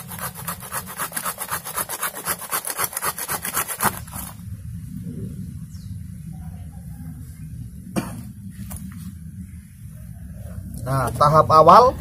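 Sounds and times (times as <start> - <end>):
hand saw cutting through roots: 0.0 - 4.4.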